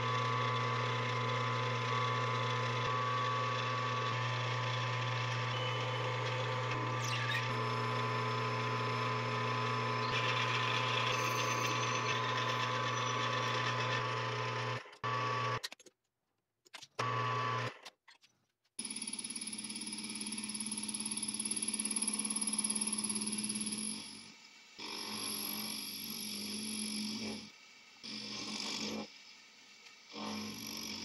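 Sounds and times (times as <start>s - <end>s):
metal lathe motor whining: 0.0s - 15.6s.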